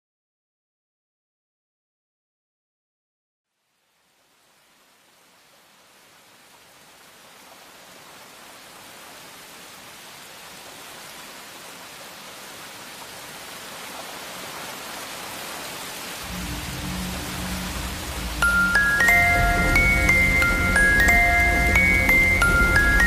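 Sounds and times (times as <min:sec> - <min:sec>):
steady rushing hiss: 0:12.8 - 0:23.0.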